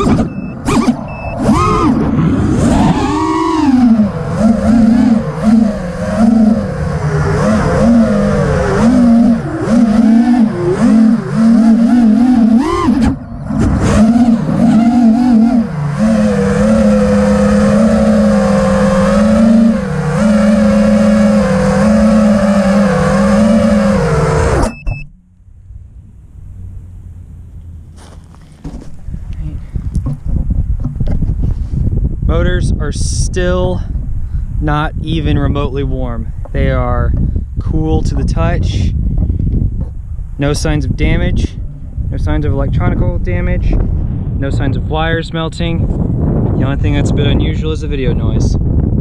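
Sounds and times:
quadcopter motors whining: 0.0 - 24.8.

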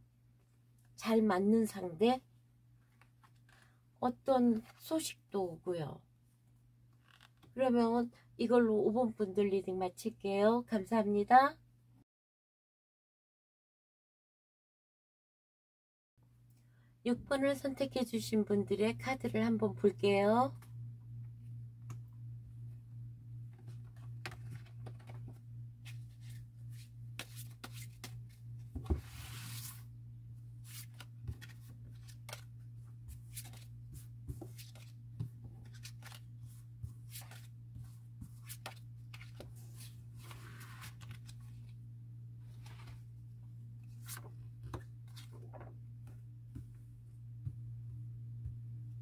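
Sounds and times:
steady low hum: 16.5 - 49.0
cards clicking and tapping: 24.2 - 25.4
cards sliding on cloth: 25.8 - 28.2, 28.8 - 29.9, 35.6 - 37.5.

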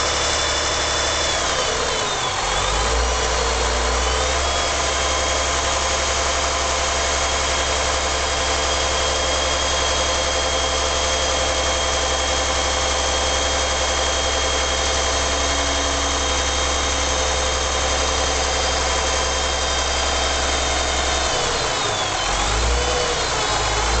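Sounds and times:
diesel bus engine idling: 0.0 - 24.0
high steady whine: 13.2 - 22.2.

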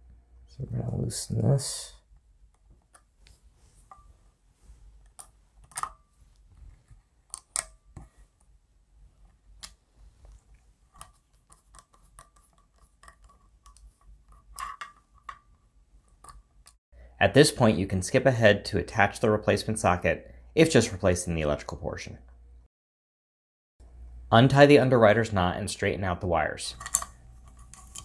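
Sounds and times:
screwdriver clicks and scrapes: 11.0 - 15.4, 26.8 - 28.0.

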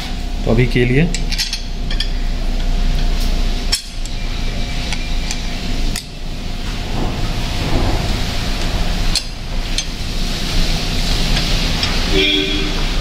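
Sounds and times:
steady background hiss: 0.0 - 13.0
metal hardware clinking: 1.1 - 2.2, 3.7 - 4.2, 4.9 - 6.2.

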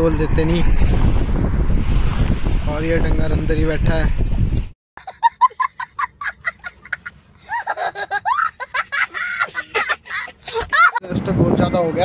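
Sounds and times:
young boy laughing: 5.0 - 11.0.

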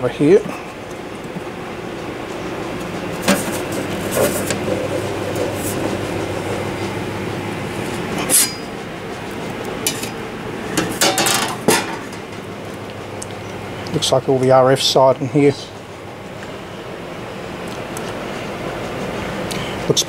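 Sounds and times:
steady background hum: 0.0 - 20.0
metal cover clinking and knocking: 10.8 - 12.4.

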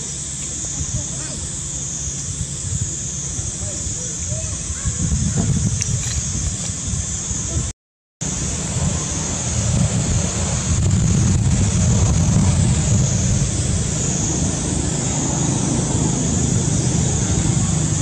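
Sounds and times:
constant high hiss: 0.0 - 18.0
low rumble: 0.6 - 18.0.

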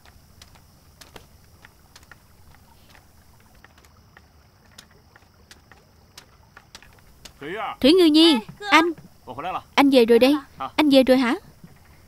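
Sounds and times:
light clicks and ticks: 0.0 - 7.6.

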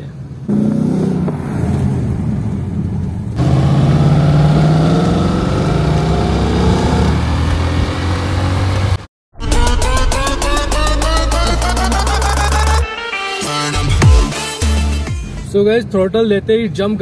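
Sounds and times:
car engine accelerating: 0.5 - 9.1.

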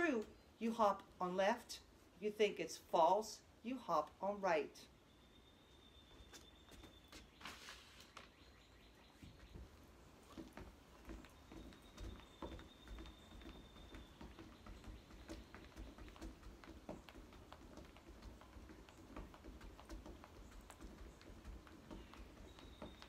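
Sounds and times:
feet hopping on wooden deck: 6.0 - 23.0.

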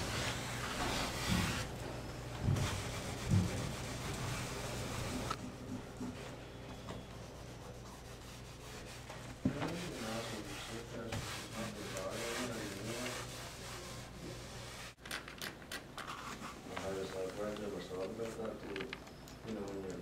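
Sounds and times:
cloth scrubbing painted wall: 2.4 - 6.2, 7.2 - 15.0.

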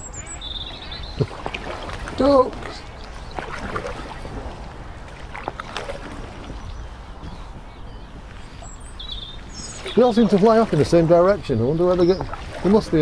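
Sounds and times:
water washing along hull: 0.0 - 13.0
wind on microphone: 0.0 - 13.0
sharp splashes: 0.4 - 6.6, 9.4 - 13.0
paddle blades dipping in water: 0.4 - 13.0.

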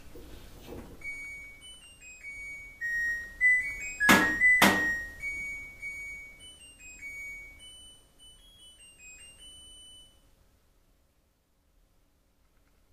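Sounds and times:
washing machine end-of-cycle beeps: 2.8 - 6.3.

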